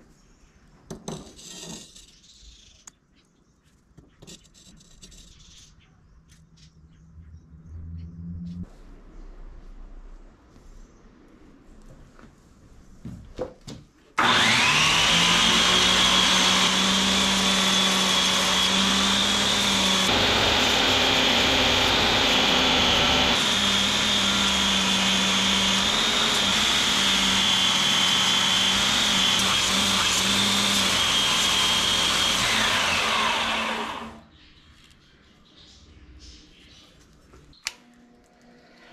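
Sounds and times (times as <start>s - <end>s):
abrasive belt grinding steel: 14.2s - 34.2s
belt grinder whining: 14.2s - 34.2s.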